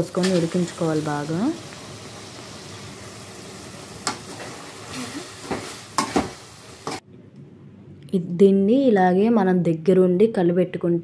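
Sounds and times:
curry simmering and sizzling: 0:00.0 - 0:07.0.

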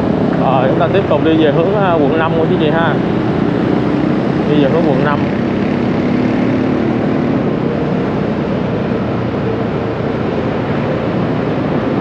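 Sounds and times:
city traffic noise: 0:00.0 - 0:12.0
engine hum: 0:00.0 - 0:12.0.

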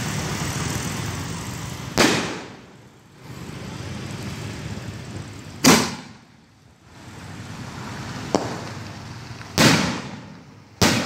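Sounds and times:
firework bangs: 0:01.9 - 0:02.8, 0:05.6 - 0:06.3, 0:08.2 - 0:11.0.

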